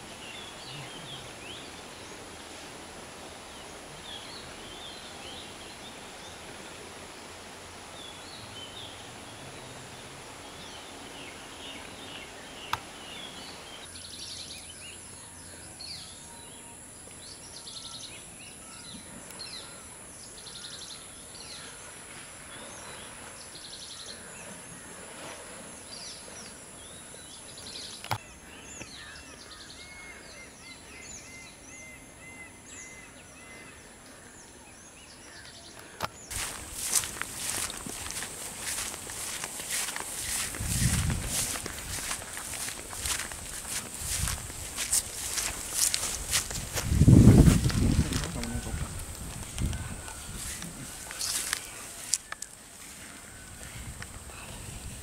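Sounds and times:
steady background hiss: 0:00.0 - 0:55.0
small birds chirping: 0:32.5 - 0:55.0.

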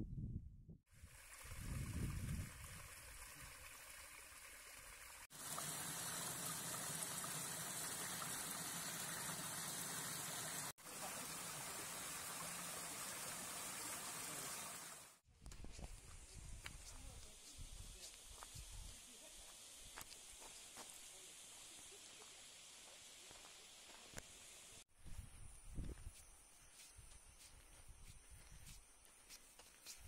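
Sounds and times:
stream water rushing over rocks: 0:03.7 - 0:15.1.

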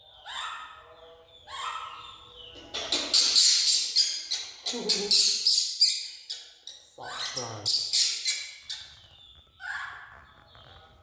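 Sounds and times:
baby monkey shrieking: 0:00.2 - 0:00.8, 0:01.5 - 0:02.2, 0:02.8 - 0:09.0.

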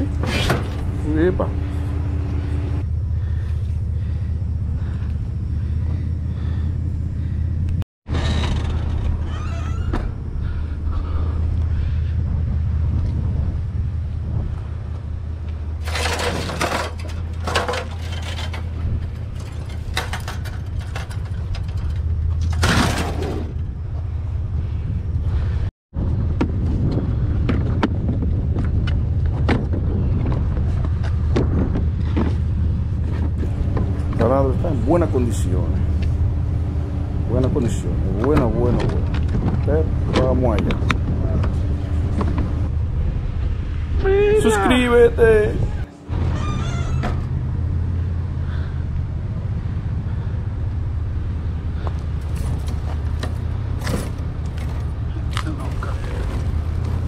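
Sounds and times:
vehicle engine idling: 0:00.0 - 0:16.3, 0:28.4 - 0:57.0.

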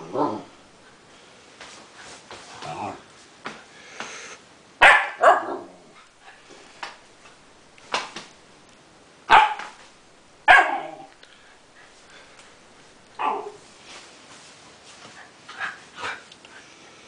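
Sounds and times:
puppy barking: 0:04.8 - 0:05.8, 0:09.3 - 0:09.8, 0:10.4 - 0:11.1, 0:13.2 - 0:13.6.

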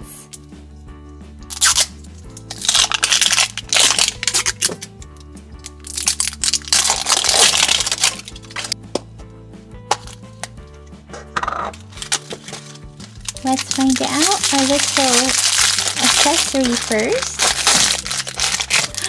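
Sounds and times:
background music: 0:00.0 - 0:19.0
plastic wrapping crinkling and tearing: 0:01.5 - 0:08.8, 0:11.8 - 0:19.0.

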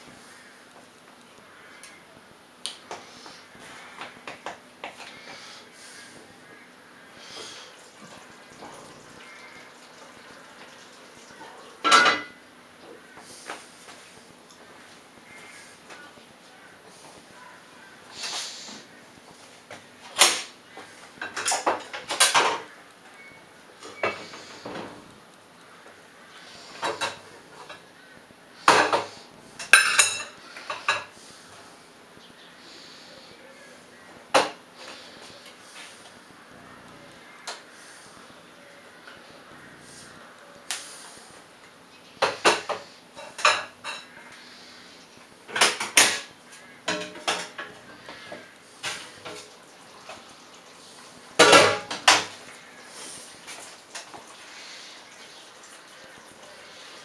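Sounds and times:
dishes clattering on metal counter: 0:11.4 - 0:12.4, 0:21.2 - 0:22.8, 0:26.7 - 0:27.8, 0:28.6 - 0:31.2, 0:42.2 - 0:44.2, 0:45.5 - 0:49.5, 0:51.4 - 0:52.4.

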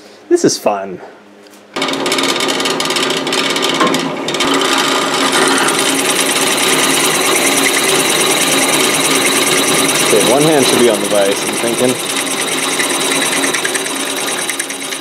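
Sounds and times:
drill press motor: 0:01.8 - 0:15.0
drill bit cutting metal: 0:04.8 - 0:15.0.

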